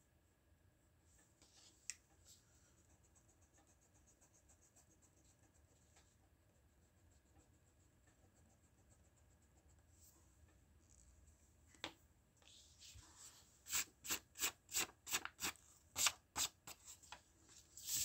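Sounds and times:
pencil scratching on paper: 2.3s - 10.2s.

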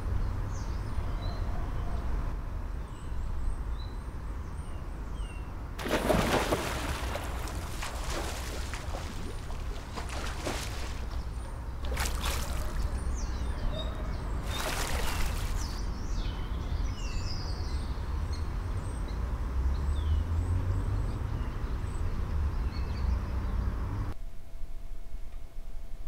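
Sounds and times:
pool water splashing: 5.8s - 13.2s, 14.4s - 15.8s
small birds chirping: 6.8s - 19.2s.

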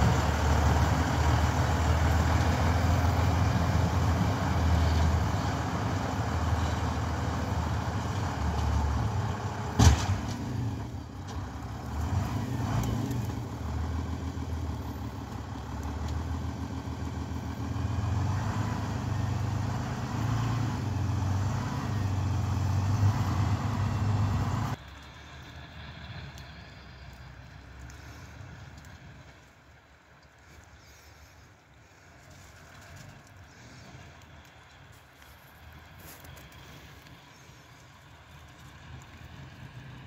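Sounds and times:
tractor engine running: 0.0s - 40.0s.

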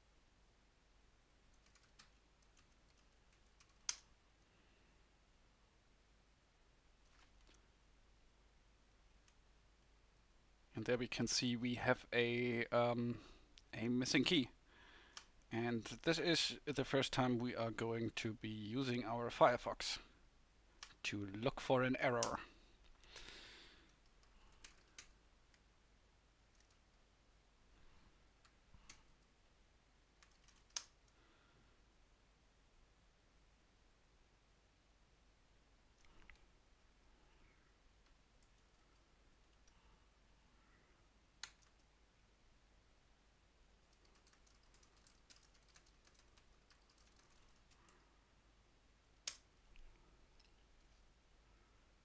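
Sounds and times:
keyboard typing: 1.5s - 4.1s, 23.0s - 25.6s, 26.4s - 26.9s, 30.2s - 31.2s, 41.4s - 41.9s, 43.8s - 48.1s.

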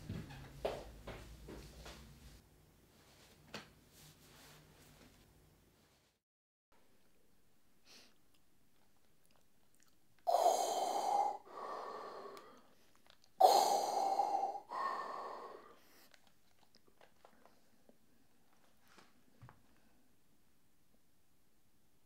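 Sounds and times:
quiet breath: 7.8s - 8.3s, 10.3s - 16.4s, 17.3s - 20.4s
man sniffing through nose: 10.3s - 12.6s, 13.4s - 16.1s.

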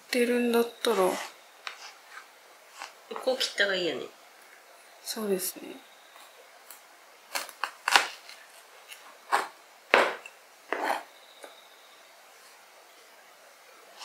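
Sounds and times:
knife cutting onion on board: 9.3s - 11.1s.

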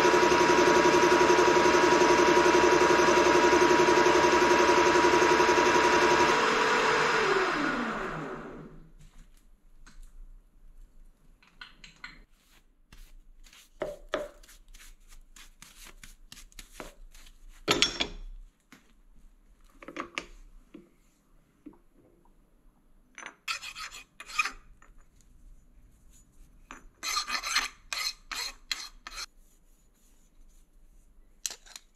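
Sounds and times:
power tool motor winding down: 0.0s - 8.8s.

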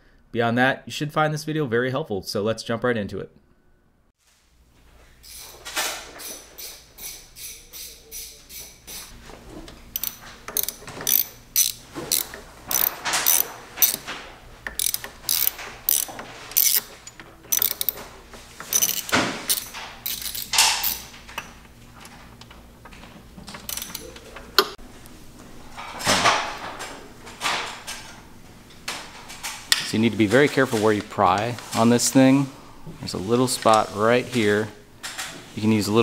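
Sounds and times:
ratchet wrench clicking: 6.2s - 9.1s, 10.0s - 14.1s, 14.7s - 16.9s, 17.5s - 18.0s, 18.7s - 21.0s, 23.7s - 24.1s.

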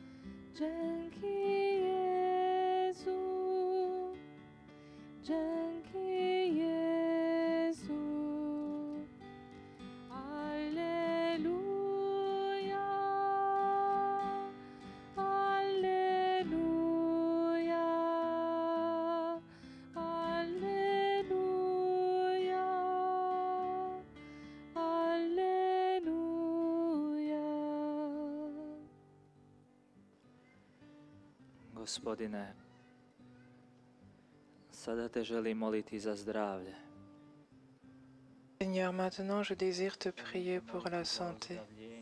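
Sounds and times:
person singing slow melody: 0.0s - 4.3s, 5.2s - 29.0s
plucked acoustic guitar: 0.0s - 27.4s.

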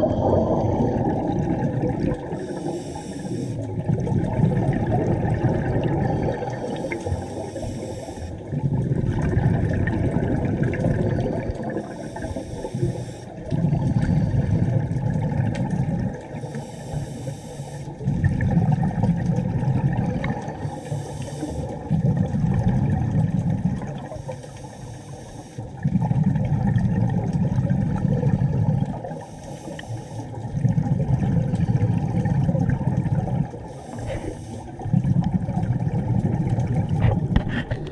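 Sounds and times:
exhale bubbling underwater: 0.0s - 37.9s
regulator inhale hiss: 2.3s - 3.7s, 6.3s - 8.4s, 11.8s - 13.5s, 16.3s - 18.0s, 20.6s - 21.9s, 24.0s - 25.8s, 29.1s - 30.5s, 33.6s - 34.9s.

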